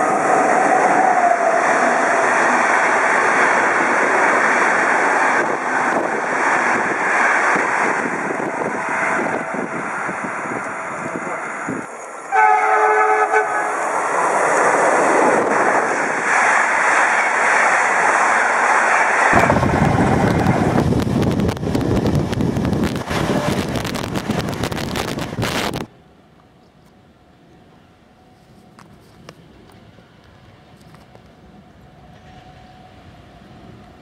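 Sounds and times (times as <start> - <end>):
wind at window: 0.0 - 12.3, 13.7 - 34.0
train running noise: 0.0 - 34.0
train horn: 10.5 - 14.0.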